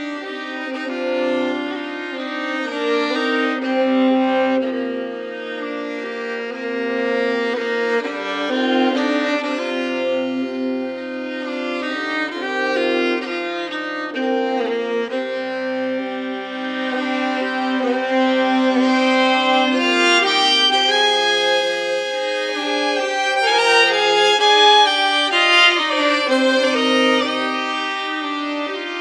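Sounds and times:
fiddles playing folk tune: 0.0s - 29.0s.

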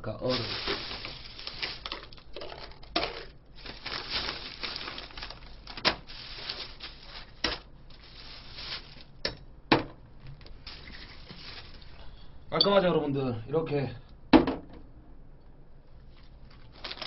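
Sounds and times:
packaging rustling and crinkling: 0.2s - 9.1s, 10.3s - 11.9s, 16.1s - 17.0s.

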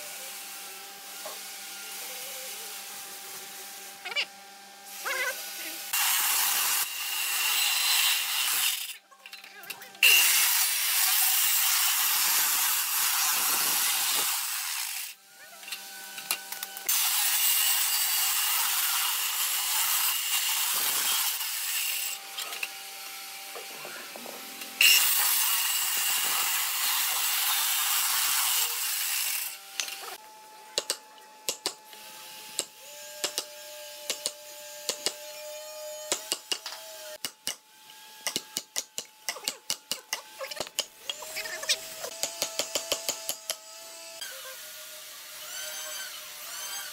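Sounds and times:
circular saw cutting wood: 0.0s - 9.0s, 10.0s - 46.9s.

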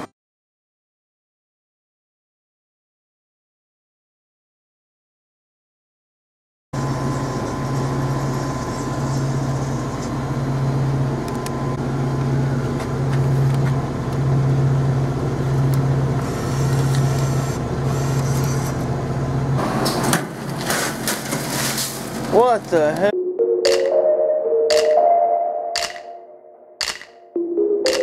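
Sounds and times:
low machine hum: 6.8s - 19.6s.

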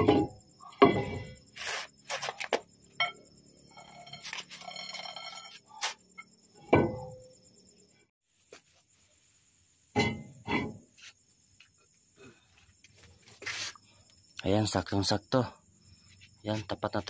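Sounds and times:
metal clanks and clinks: 0.0s - 1.4s.

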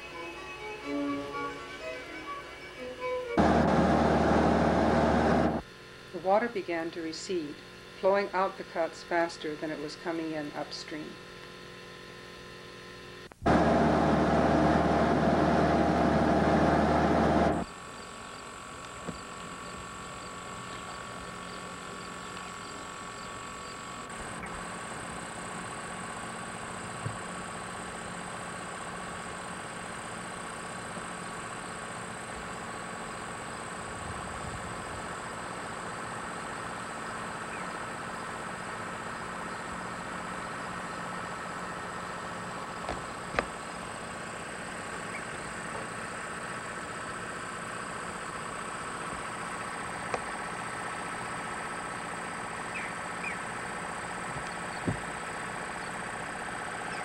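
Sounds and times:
outdoor hum and hiss: 0.0s - 57.0s.

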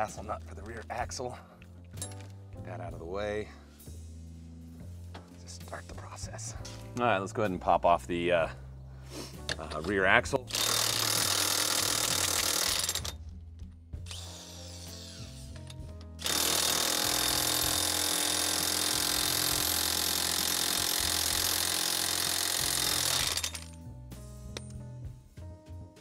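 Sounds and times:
impact wrench hammering: 10.5s - 13.2s, 14.1s - 23.8s.

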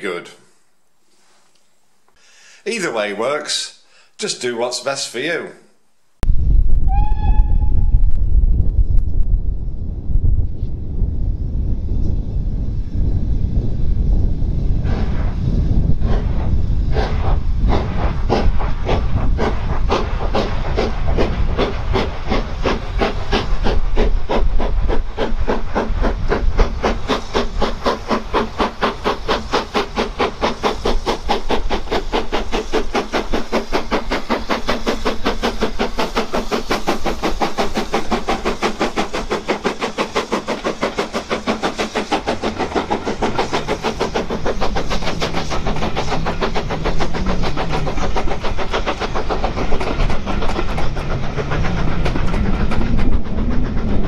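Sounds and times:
steam locomotive exhaust beats: 6.2s - 54.0s
steam hissing: 11.2s - 54.0s.

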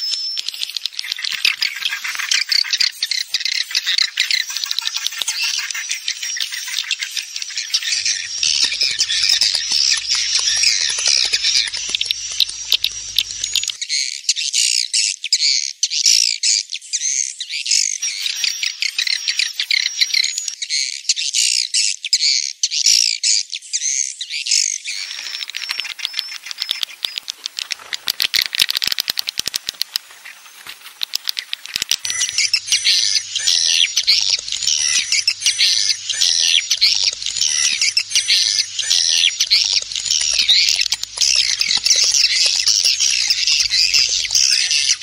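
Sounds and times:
birds chirping and twittering: 0.0s - 14.0s, 16.9s - 21.0s, 23.8s - 45.0s
rapid clicking: 8.0s - 13.8s, 25.0s - 45.0s.

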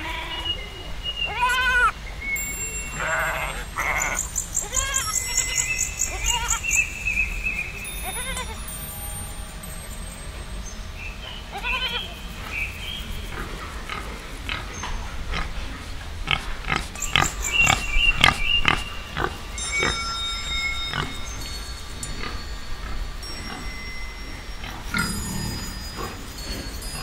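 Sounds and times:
goat bleating: 0.0s - 0.5s, 1.3s - 1.9s, 3.0s - 6.6s, 8.1s - 8.6s, 11.5s - 12.1s.

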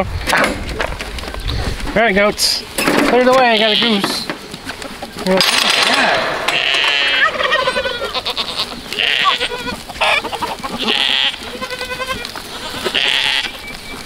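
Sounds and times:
goats bleating: 3.2s - 4.2s, 6.0s - 13.8s.

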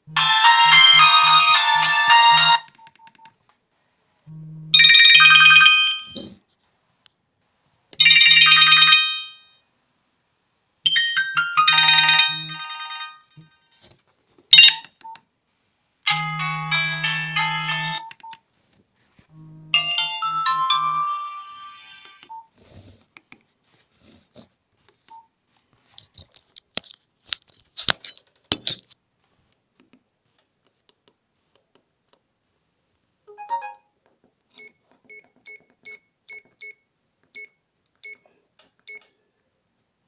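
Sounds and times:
phone ringtone melodies: 0.1s - 2.7s, 4.3s - 6.2s, 8.0s - 9.6s, 10.9s - 13.6s, 16.1s - 18.1s, 19.4s - 22.4s, 33.3s - 33.9s.

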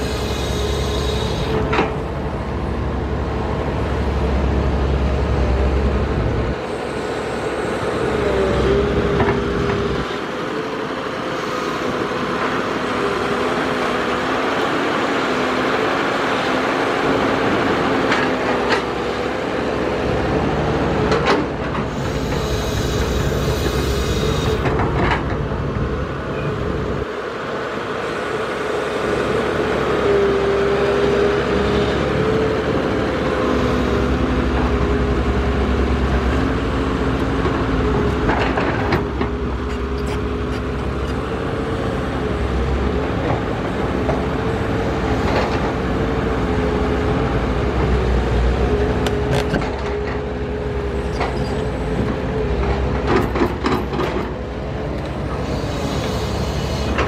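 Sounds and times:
hydraulic whine: 0.0s - 2.1s, 6.6s - 9.9s, 21.8s - 24.8s, 55.0s - 57.0s
excavator engine running: 0.0s - 57.0s.

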